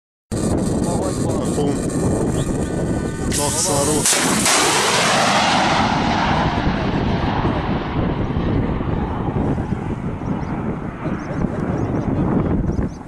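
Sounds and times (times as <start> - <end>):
missile launch blast: 3.3 - 8.1.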